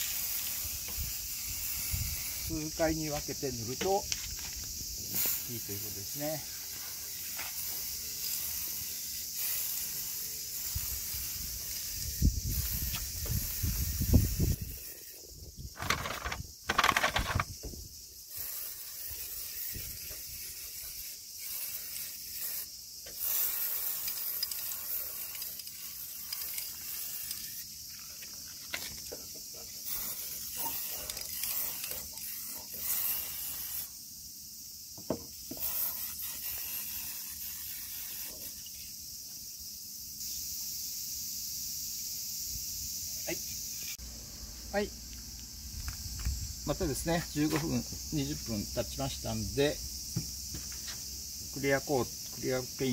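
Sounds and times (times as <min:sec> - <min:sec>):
aerosol can spraying: 0:00.0 - 0:39.6.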